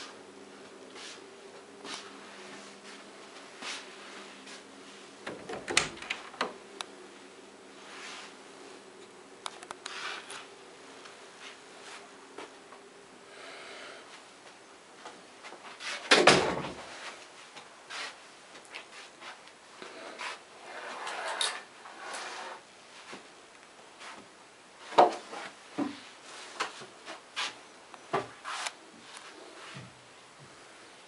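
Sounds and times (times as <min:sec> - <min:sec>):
wooden door clicks and knocks: 0:05.3 - 0:06.6.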